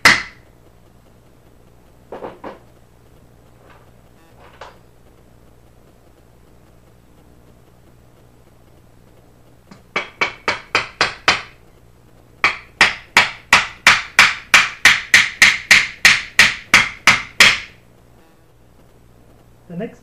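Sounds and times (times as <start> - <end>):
hammer driving a nail: 0.0 - 0.4, 9.7 - 11.6, 12.4 - 17.8.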